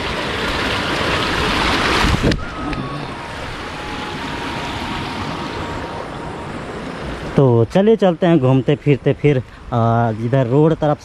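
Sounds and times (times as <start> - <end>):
water rushing over a dam: 0.0 - 11.0
wind on microphone: 0.5 - 7.4.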